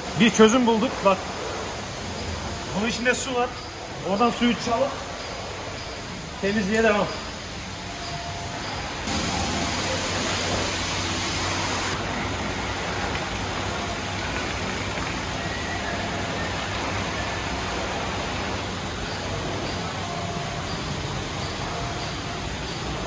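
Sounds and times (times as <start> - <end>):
water spray hissing: 9.1 - 12.0.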